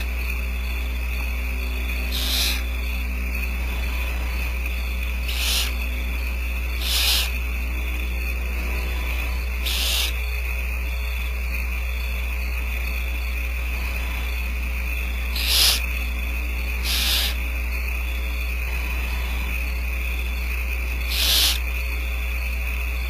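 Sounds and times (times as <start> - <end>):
low electrical hum: 0.0 - 23.0
owlets hissing begging calls: 2.0 - 2.8, 5.1 - 7.5, 8.8 - 10.3, 15.1 - 17.6, 18.5 - 19.6, 20.9 - 21.8.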